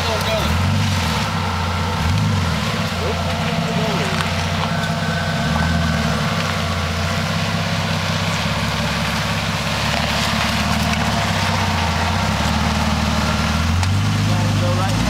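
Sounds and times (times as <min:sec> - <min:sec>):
car engine running at low revs: 0:00.0 - 0:15.0.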